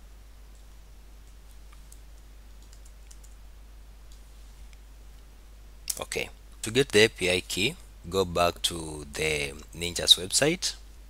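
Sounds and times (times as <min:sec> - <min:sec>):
low steady hum: 0:00.0 - 0:11.0
keyboard keystrokes and clicks: 0:02.6 - 0:03.4.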